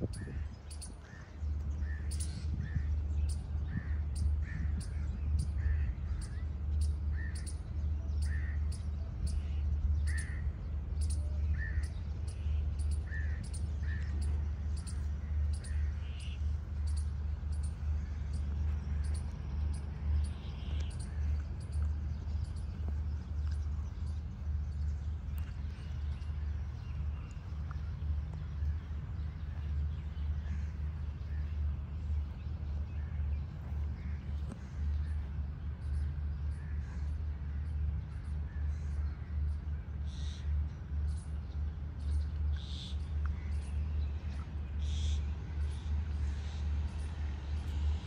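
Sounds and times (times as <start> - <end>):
wind buffeting microphone: 0.0 - 6.7
birds chirping: 0.0 - 48.0
low rumble: 0.0 - 48.0.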